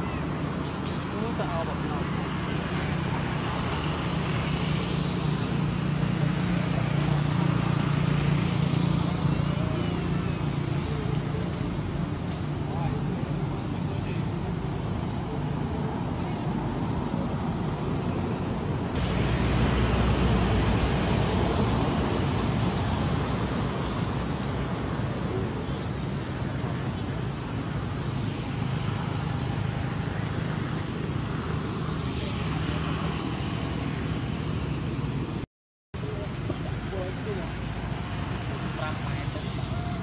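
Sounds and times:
low rumble with hiss: 0.0 - 35.3.

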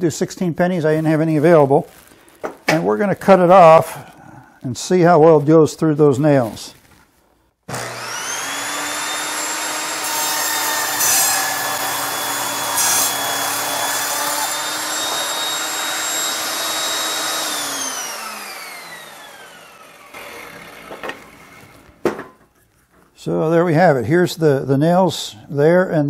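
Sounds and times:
saw teeth hitting nails: 7.7 - 18.8
saw blade spinning down: 7.7 - 22.1
table saw cutting wood: 7.7 - 22.2.

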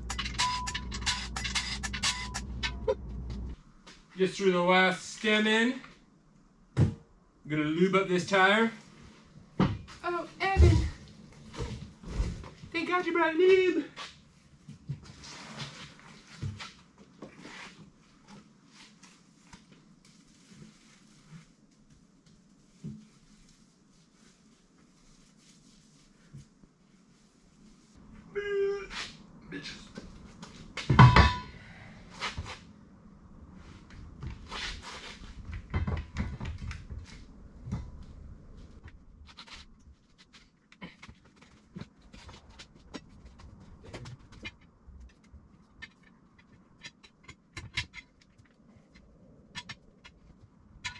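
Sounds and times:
tire dropped with metallic ring: 0.0 - 3.3, 30.8 - 31.7
swishing and rubbing on tyre: 18.6 - 28.0, 32.1 - 35.5.

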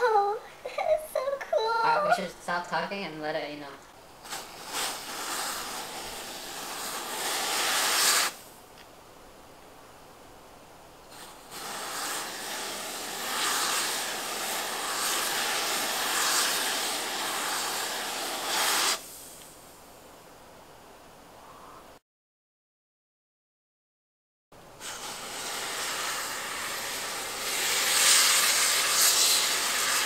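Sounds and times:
aerosol spray hissing: 4.2 - 8.5, 11.1 - 19.6, 24.8 - 30.0.

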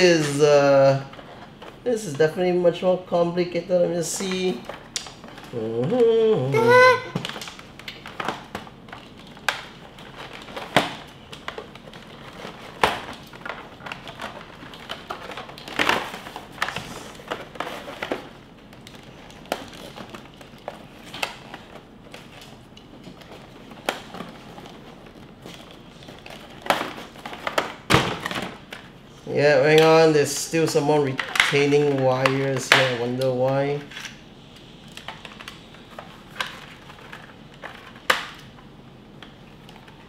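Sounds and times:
packaging rustling and crinkling: 0.0 - 40.0.

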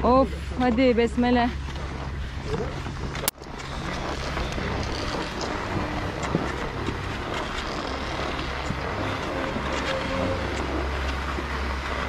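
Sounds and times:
wind rumbling on microphone: 0.0 - 12.0
skis scraping over snow: 0.1 - 12.0.

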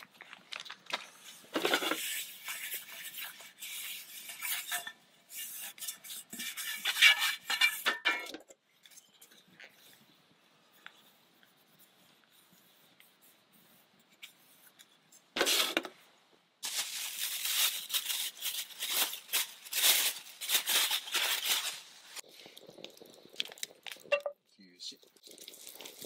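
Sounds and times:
plastic wrapping crinkling: 0.0 - 2.8, 16.6 - 24.3.

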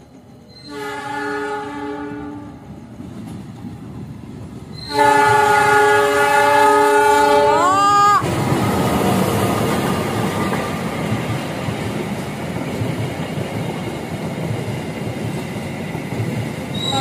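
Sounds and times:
train wheels rumbling on rails: 0.0 - 17.0
locomotive air horn: 0.6 - 2.6, 4.9 - 7.8.

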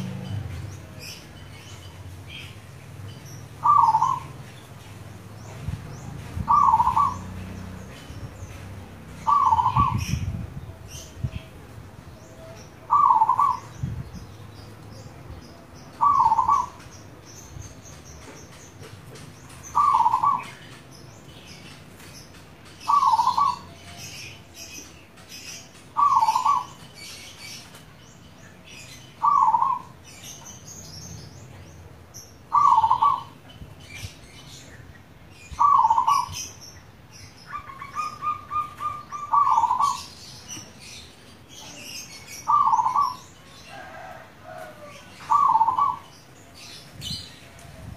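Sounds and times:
small birds chirping: 0.0 - 47.9
dove cooing: 3.6 - 4.3, 6.4 - 7.4, 9.2 - 10.3, 12.4 - 13.7, 16.0 - 16.8, 19.7 - 20.5, 22.8 - 23.8, 26.0 - 26.7, 29.2 - 29.9, 32.5 - 33.4, 35.6 - 36.4, 37.5 - 40.1, 42.4 - 46.0.

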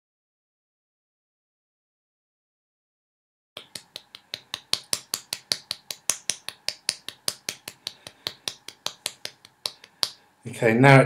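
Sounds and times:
hand smacking bottle base: 3.6 - 10.2.

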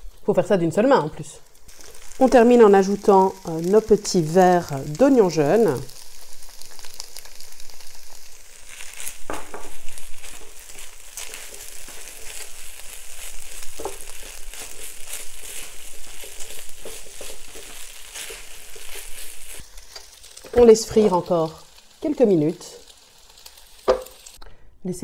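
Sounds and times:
rice sizzling in a wok: 0.0 - 24.4
spatula scraping a wok: 5.9 - 21.1.

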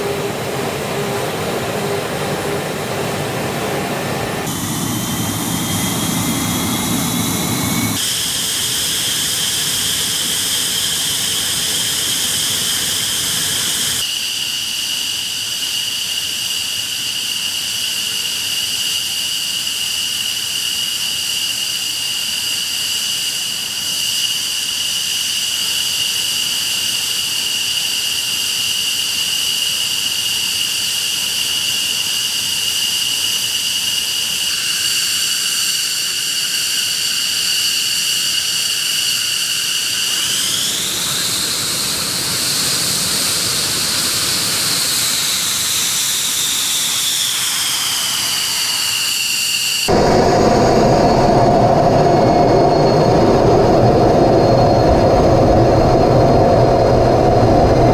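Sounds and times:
deep rumble: 0.0 - 8.0, 49.9 - 57.9
jet engines whining: 0.0 - 15.9, 16.7 - 57.9.

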